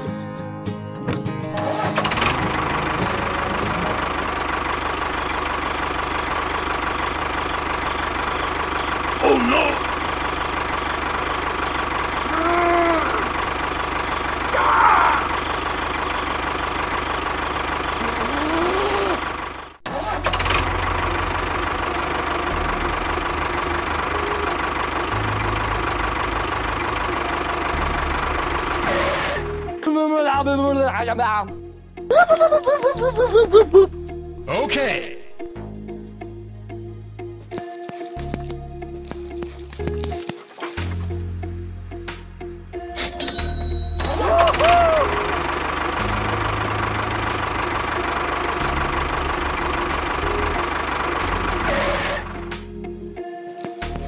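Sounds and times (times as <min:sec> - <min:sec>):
tractor engine chugging: 0:02.0 - 0:29.6, 0:43.5 - 0:52.4.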